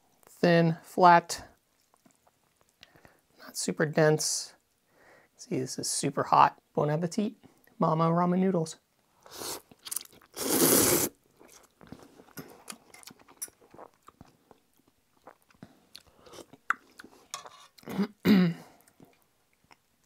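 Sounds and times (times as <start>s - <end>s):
slurping noodles: 9.2s - 11.2s
chewing with wet clicks: 11.4s - 17.9s, 18.8s - 19.9s.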